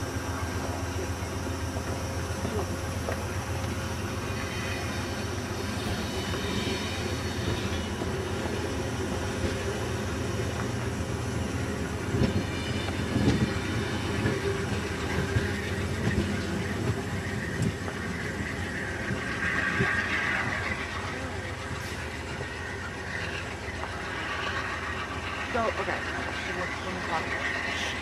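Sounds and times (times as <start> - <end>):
train wheels rumbling on rail: 0.0 - 28.0
wheel squeal: 12.3 - 28.0.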